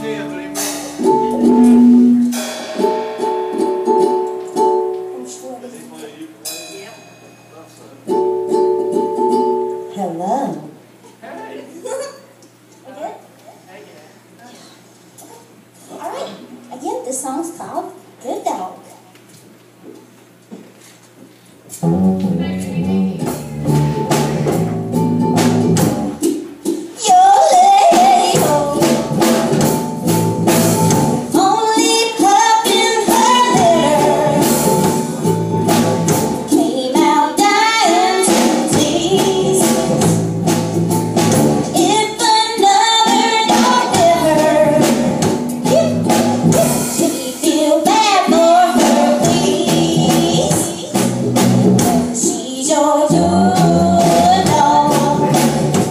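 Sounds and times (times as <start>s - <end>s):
electric guitars: 0.0s - 5.3s, 21.7s - 26.2s, 27.2s - 36.6s
drum kit with cymbals: 0.0s - 5.4s, 6.1s - 9.1s, 21.8s - 55.9s
woman singing lead vocal: 27.0s - 29.5s, 31.3s - 34.9s, 36.5s - 40.2s, 41.8s - 46.0s, 46.6s - 51.1s, 52.1s - 55.9s.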